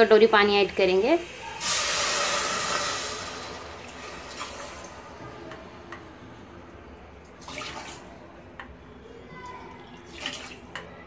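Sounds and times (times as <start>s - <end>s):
water splashing into a pot: 1.2s - 5.2s, 7.3s - 8.2s, 10.0s - 10.9s.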